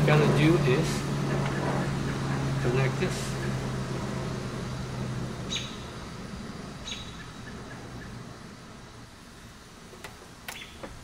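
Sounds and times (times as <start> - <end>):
bird chirps: 5.4 - 6.0, 6.8 - 8.2, 10.5 - 10.9.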